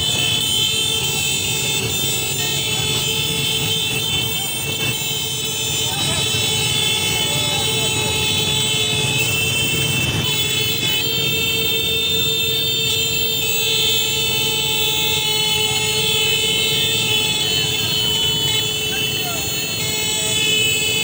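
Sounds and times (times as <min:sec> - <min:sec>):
motorcycle horns blaring: 0:00.0 - 0:21.0.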